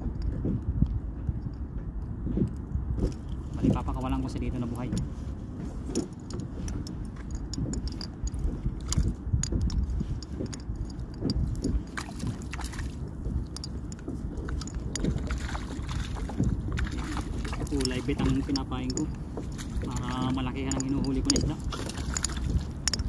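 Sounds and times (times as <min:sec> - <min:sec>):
low steady rumble: 0:00.0 - 0:23.0
water lapping against boat hull: 0:00.0 - 0:23.0
fishing reel clicks and taps: 0:20.6 - 0:23.0.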